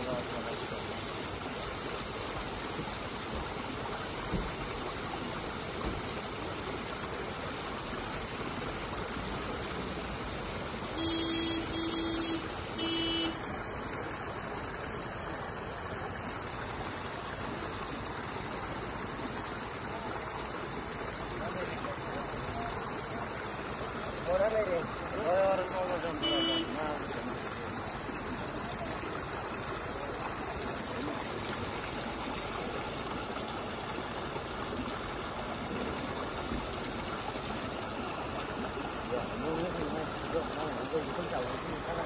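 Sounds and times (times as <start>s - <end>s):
water flowing over gravel: 0.0s - 42.0s
vehicle horn honking: 10.9s - 13.4s, 26.2s - 26.8s.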